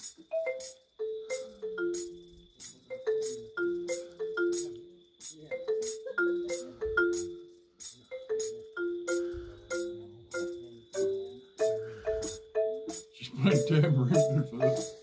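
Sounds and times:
marimba played with mallets: 0.3 - 4.8, 5.5 - 7.5, 8.1 - 15.0.

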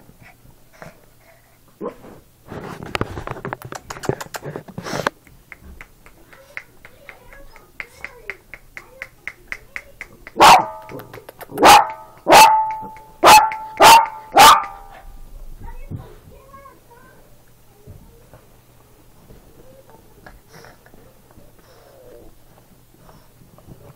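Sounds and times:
rustling: 1.9 - 6.5
small dog barking: 10.3 - 15.0.

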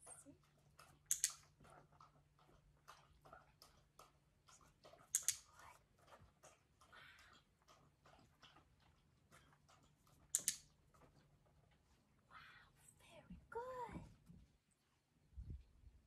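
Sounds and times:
dog chewing: 0.0 - 12.2
sharp double clicks: 1.1 - 1.4, 5.1 - 5.5, 10.3 - 10.6.

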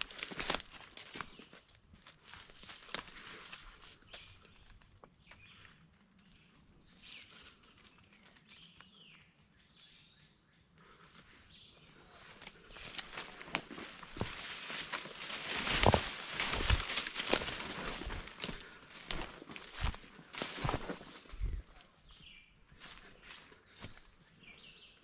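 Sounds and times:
footsteps through leafy undergrowth: 0.0 - 4.8, 12.1 - 24.3
high insect trill: 0.2 - 21.7.

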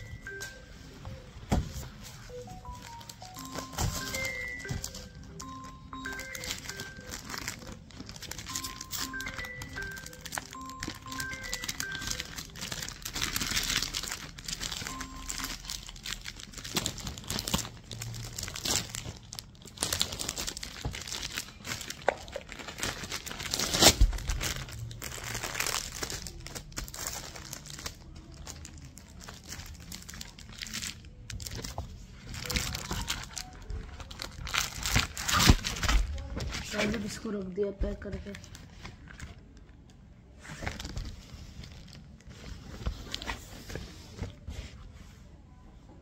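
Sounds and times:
plastic sleeve crinkling: 1.8 - 37.4, 40.4 - 44.4.

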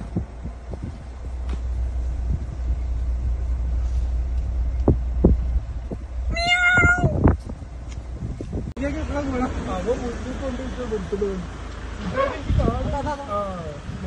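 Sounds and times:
car rumbling on the move: 0.0 - 14.0
short high-pitched cry: 6.3 - 7.2.

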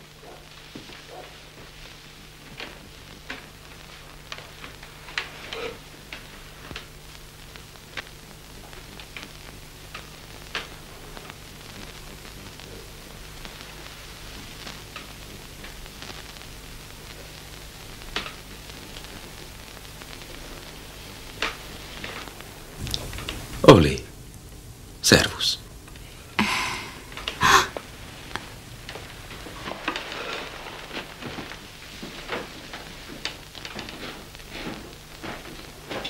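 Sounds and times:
low mains hum: 0.0 - 36.0
soundtrack hiss: 0.0 - 36.0
faint clicks and ticks: 2.4 - 23.6.

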